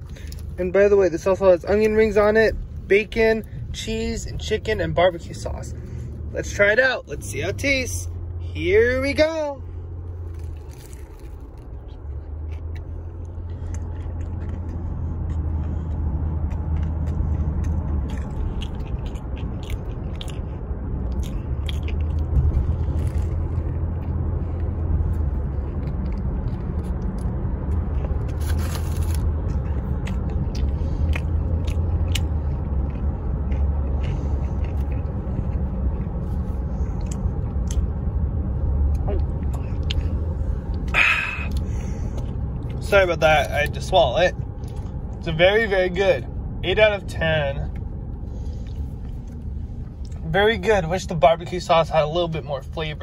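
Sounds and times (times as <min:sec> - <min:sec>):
crunchy chewing: 0:10.0 - 0:38.0.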